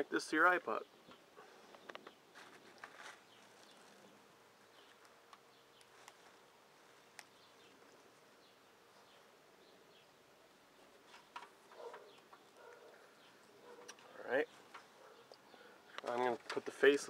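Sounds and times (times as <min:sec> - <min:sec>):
audio cable clicks and rustles: 0:01.1 - 0:03.8, 0:11.0 - 0:12.5, 0:13.8 - 0:16.8.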